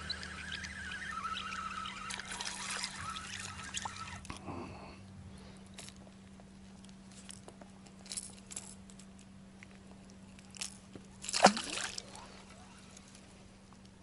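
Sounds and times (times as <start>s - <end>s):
splash in water: 11.2s - 12.2s.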